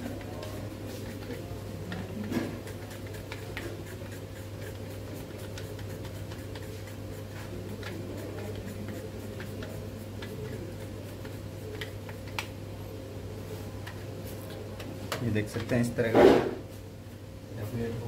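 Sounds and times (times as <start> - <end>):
steady low hum: 0.0 - 18.0
chocolate flakes ticking: 0.1 - 12.5.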